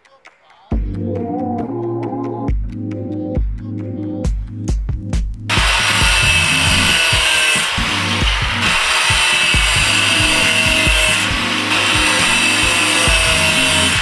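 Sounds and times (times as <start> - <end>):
angle grinder cutting metal: 5.5 - 14.0.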